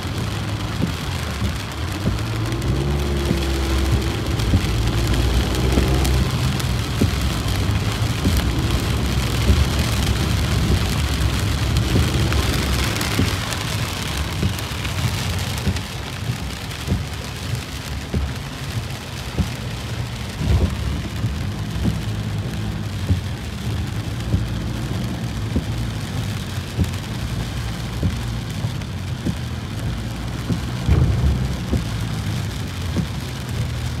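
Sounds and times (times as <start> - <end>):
heavy rain on car roof: 0.0 - 34.0
low car rumble: 0.0 - 34.0.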